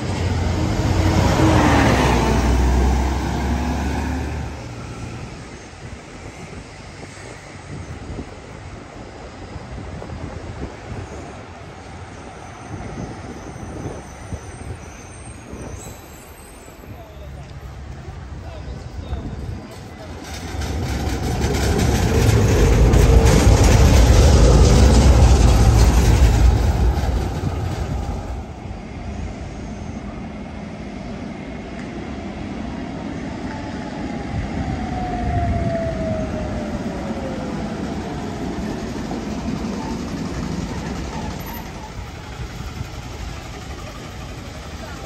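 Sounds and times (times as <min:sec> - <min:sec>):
tram rumbling on rails: 0:00.0 - 0:45.0.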